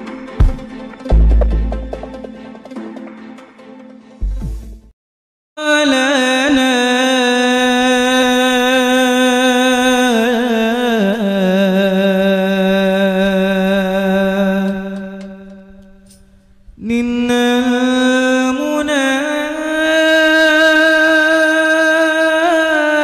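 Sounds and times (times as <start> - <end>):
person singing long held notes: 5.6 - 16.0, 16.8 - 23.0.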